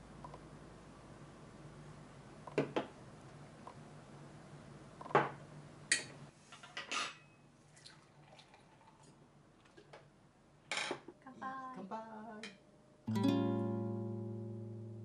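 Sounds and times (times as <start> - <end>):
acoustic guitar music: 13.1 - 15.0.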